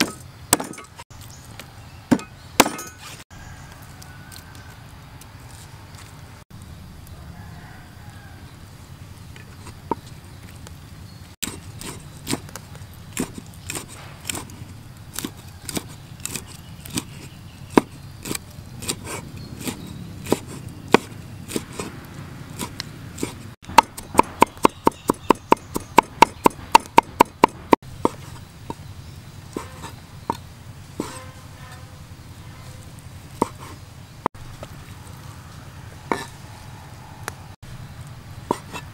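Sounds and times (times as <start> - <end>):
cleaver chopping on wooden board: 0.0 - 0.9, 2.1 - 3.0, 15.2 - 21.9, 22.6 - 28.8, 31.0 - 31.3, 33.4 - 33.8.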